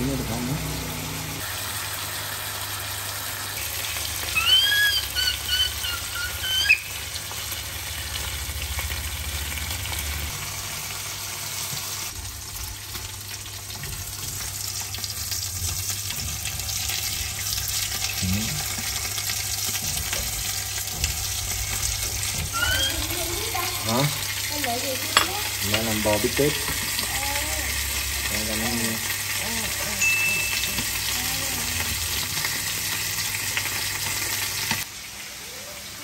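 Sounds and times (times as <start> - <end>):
meat sizzling in a pan: 0.0 - 36.0
high-pitched squeaky calls: 4.2 - 7.0, 22.4 - 23.6.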